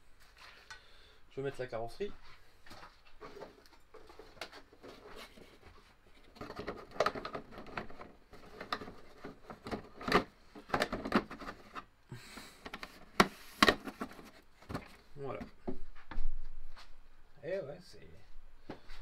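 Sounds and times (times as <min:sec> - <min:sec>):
plastic rustling and scraping: 0:02.6 - 0:11.9, 0:12.5 - 0:15.1.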